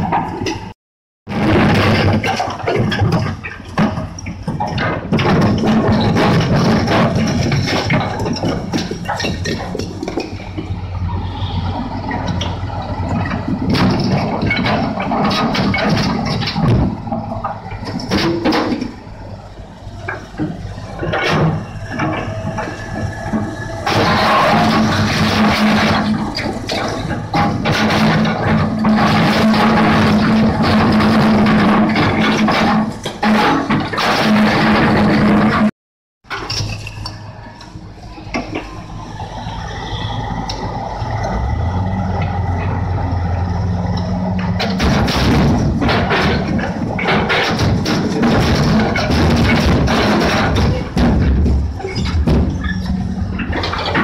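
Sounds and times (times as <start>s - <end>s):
excavator diesel engine running: 1.3s - 35.7s, 36.3s - 54.0s
rocks clattering and knocking: 44.5s - 52.7s.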